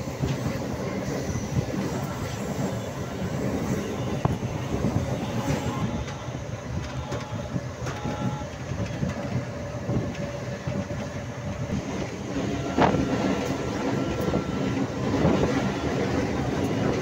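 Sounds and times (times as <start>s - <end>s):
train knocks: 0.0s - 17.0s
train wheels rumbling on rails: 0.0s - 17.0s.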